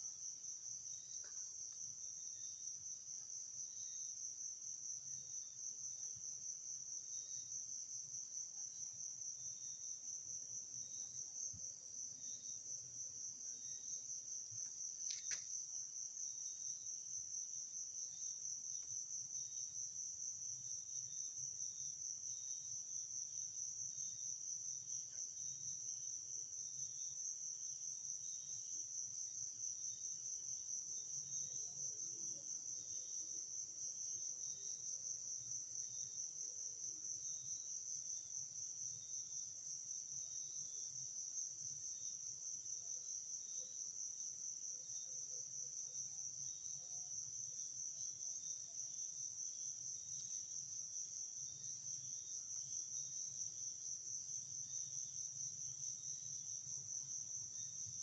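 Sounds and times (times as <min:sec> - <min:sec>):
crickets trilling: 0:11.9 - 0:36.4.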